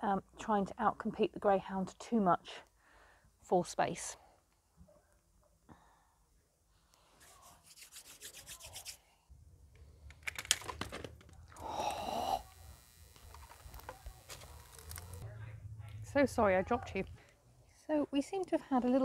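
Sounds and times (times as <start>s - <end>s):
camera handling rumble: 10.1s - 11.4s, 13.2s - 15.2s.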